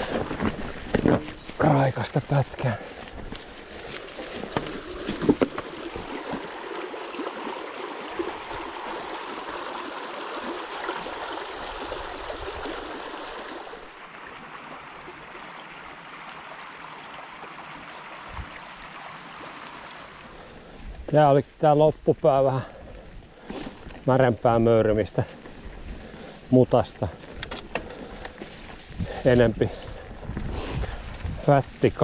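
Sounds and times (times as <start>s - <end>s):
river rushing over stones: 0.0s - 20.4s.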